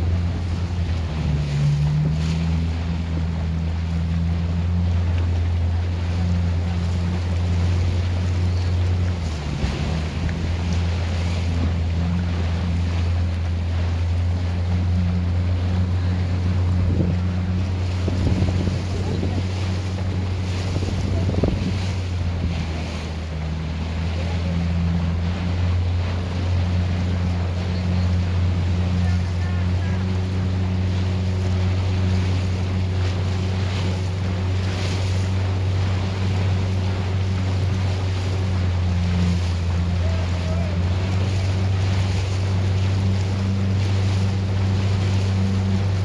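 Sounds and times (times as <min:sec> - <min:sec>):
boat motor droning: 0:00.0 - 0:46.0
water rushing along hull: 0:00.0 - 0:46.0
wind on microphone: 0:16.0 - 0:23.1.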